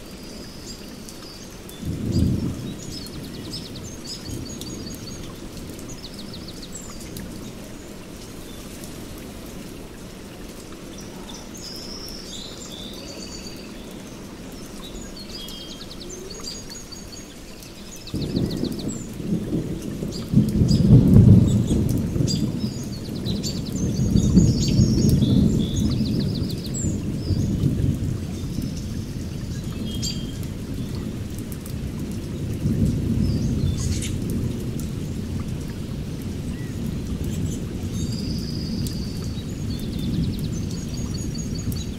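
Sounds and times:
birds chirping: 10.9s - 27.7s.

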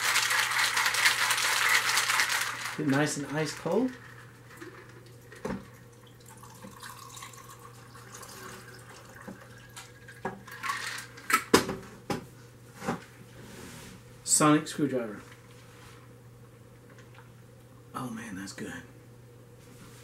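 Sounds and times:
shaker and glass clinking: 0.0s - 4.2s
liquid trickling into glass: 5.8s - 10.2s.

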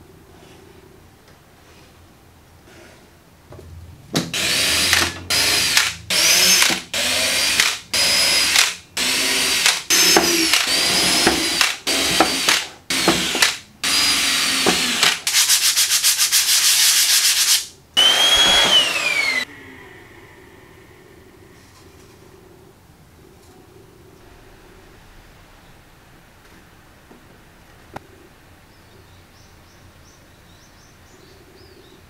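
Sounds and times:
cordless drill whining: 4.4s - 15.3s, 18.0s - 19.5s.

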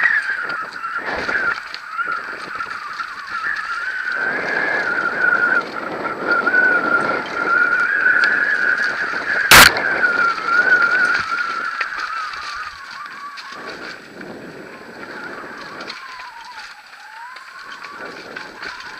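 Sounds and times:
tyres rattling on dirt: 0.0s - 18.9s
high whine: 0.9s - 14.2s.

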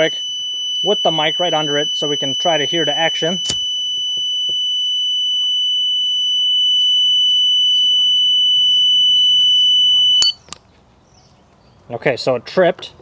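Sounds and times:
multimeter continuity beep: 0.0s - 10.4s
switch clicking: 3.4s - 3.6s.

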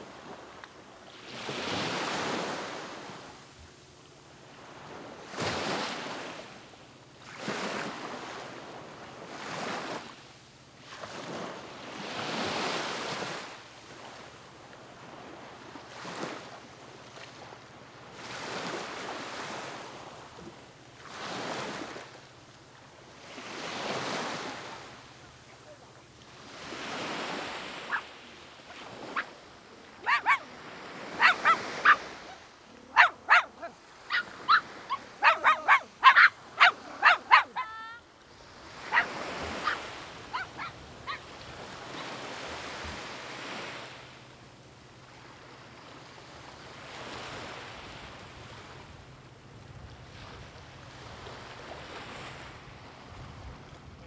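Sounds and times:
waves washing onto beach: 0.0s - 3.7s, 10.8s - 54.0s
dog barking: 27.9s - 28.1s, 30.0s - 38.0s, 38.8s - 41.3s.

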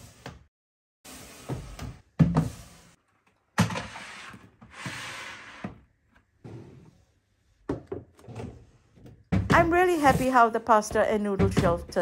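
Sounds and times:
container sliding on shelf: 3.6s - 7.0s.

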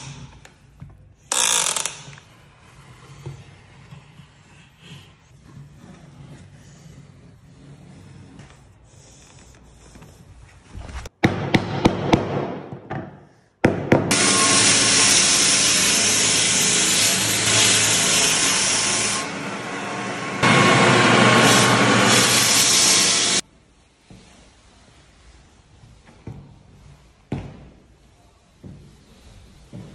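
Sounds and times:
floor sanding machine hissing: 14.1s - 23.4s.

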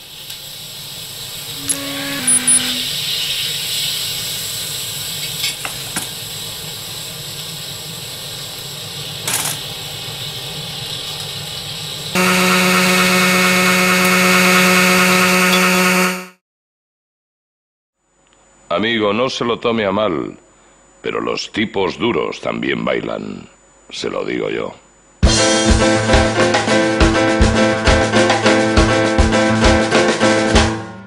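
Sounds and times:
appliance hiss: 0.0s - 16.1s
loud buzzing hum: 1.5s - 3.1s, 12.2s - 16.4s.

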